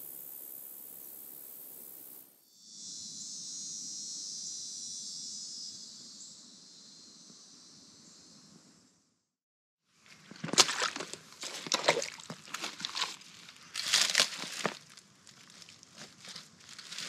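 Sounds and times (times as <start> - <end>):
high-pitched insect chorus: 0.0 - 8.9.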